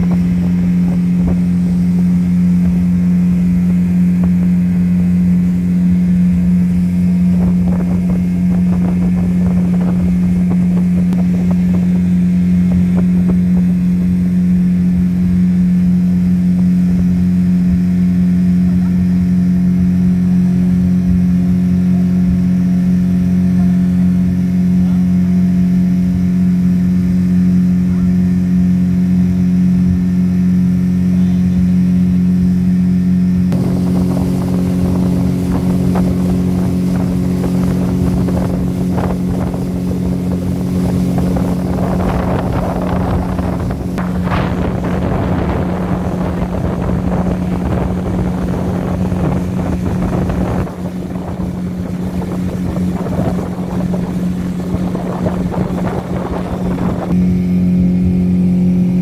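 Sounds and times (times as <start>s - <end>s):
wind on microphone: 0.0s - 19.4s, 33.5s - 57.3s
speedboat engine running: 0.0s - 59.0s.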